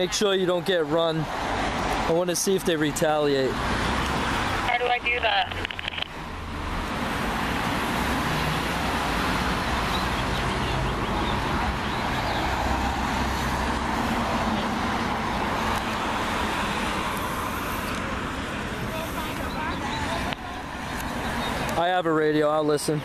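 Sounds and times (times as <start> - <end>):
cars driving past: 0.0 - 23.0.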